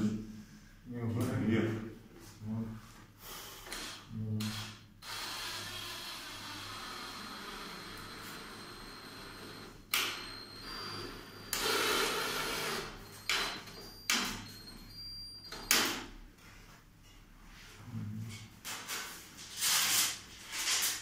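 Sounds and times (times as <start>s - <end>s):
drill driving screws into wood: 3.7s - 13.6s.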